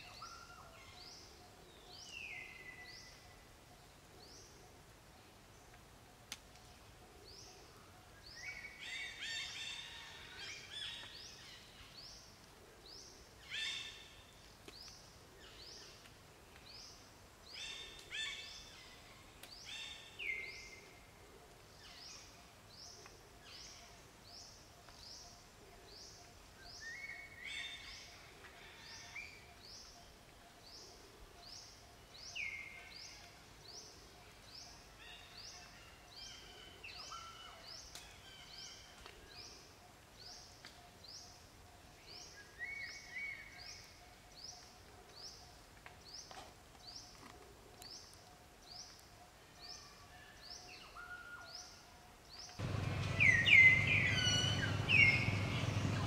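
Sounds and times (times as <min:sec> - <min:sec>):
birds chirping: 0:52.4 - 0:56.0
faint background hum: 0:52.6 - 0:56.0.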